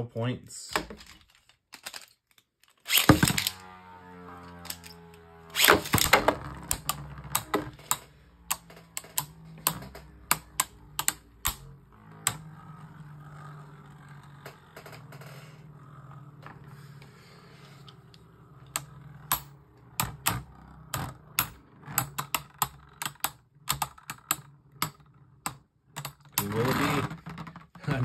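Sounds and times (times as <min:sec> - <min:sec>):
spinning top ripcord launch: 0:02.8 - 0:14.4
spinning top hum: 0:02.9 - 0:28.0.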